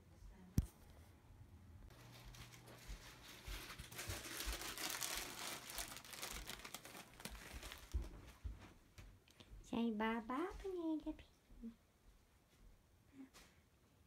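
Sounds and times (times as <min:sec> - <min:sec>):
fabric rustling and crinkling: 0:01.9 - 0:08.8.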